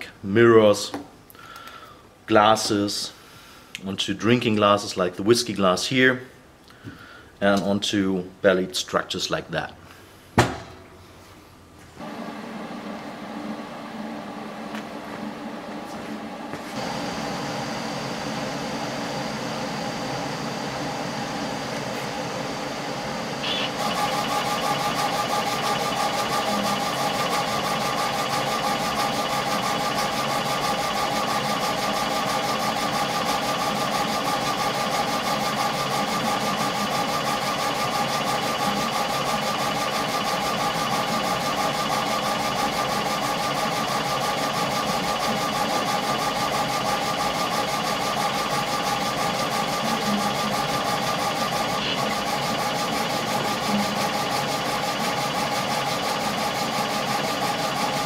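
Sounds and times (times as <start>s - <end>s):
laser engraver mechanical whine: 12.0s - 58.0s.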